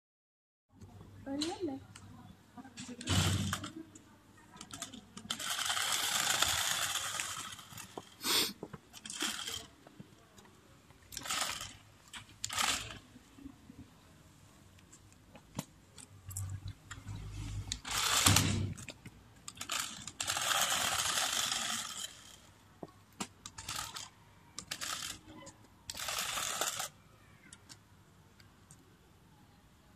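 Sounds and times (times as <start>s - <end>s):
toy car electric motors whirring: 3.0s - 3.8s, 4.6s - 9.8s, 11.1s - 13.1s, 17.1s - 22.5s, 23.4s - 27.8s.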